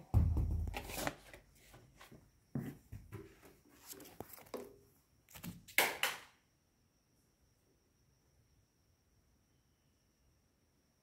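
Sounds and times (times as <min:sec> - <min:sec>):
paper rustling: 0:00.7 - 0:02.2, 0:03.7 - 0:05.8.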